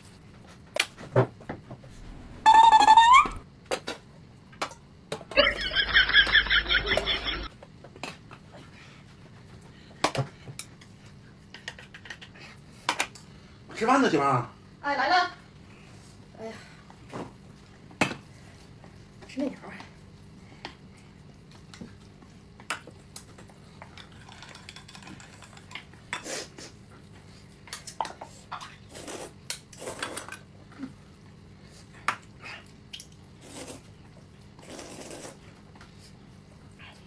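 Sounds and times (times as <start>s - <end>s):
noodle slurping: 33.4s - 33.9s, 34.6s - 35.5s.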